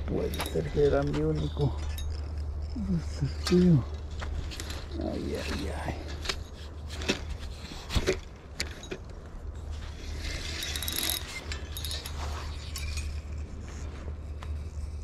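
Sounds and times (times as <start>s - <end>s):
steady low hum: 0.0s - 15.0s
fishing reel rattling: 3.3s - 15.0s.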